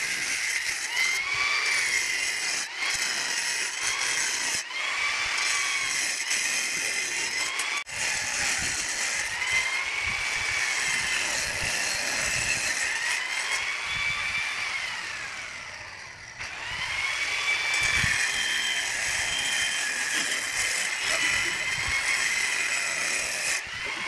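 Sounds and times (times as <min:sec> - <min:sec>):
angle grinder cutting tiles: 0:00.0 - 0:24.0.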